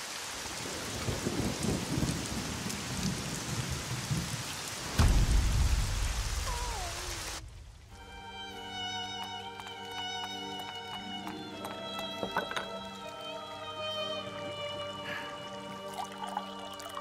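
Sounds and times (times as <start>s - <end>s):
heavy rain falling: 0.0s - 17.0s
thunderclap rumbling: 0.6s - 8.0s.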